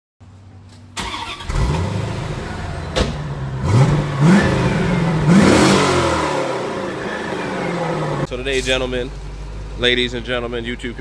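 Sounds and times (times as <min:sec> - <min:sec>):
car engine starting and idling: 0:00.4 - 0:11.0
car engine revving: 0:01.0 - 0:08.3.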